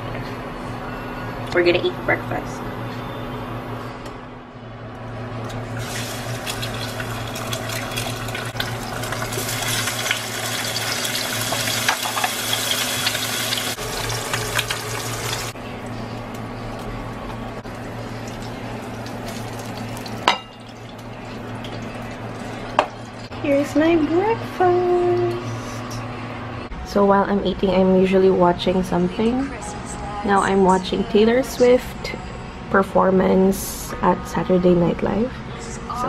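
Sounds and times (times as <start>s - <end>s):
egg and sausage sizzling in pan: 5.8s - 15.6s, 17.7s - 23.2s
steady low hum: 13.7s - 36.0s.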